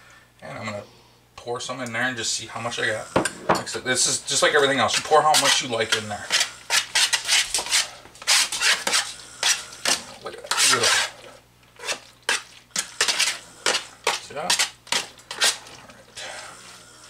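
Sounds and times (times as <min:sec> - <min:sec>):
spoon scraping metal pan: 0:02.7 - 0:11.2, 0:11.8 - 0:16.4.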